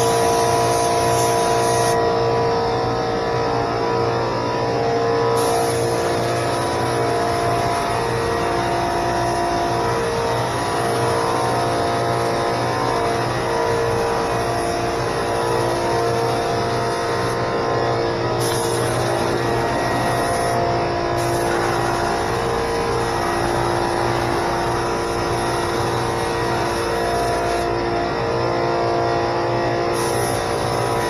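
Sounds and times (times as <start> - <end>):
air compressor running: 0.0 - 31.0
high hiss of air: 5.4 - 8.3, 18.4 - 20.6, 21.2 - 23.1.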